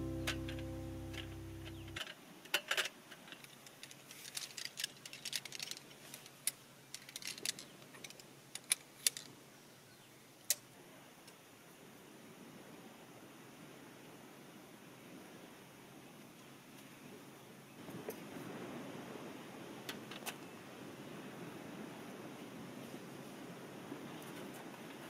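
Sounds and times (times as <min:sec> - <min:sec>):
held music chord: 0:00.0 - 0:02.0
light clicks and clinks: 0:01.6 - 0:09.3.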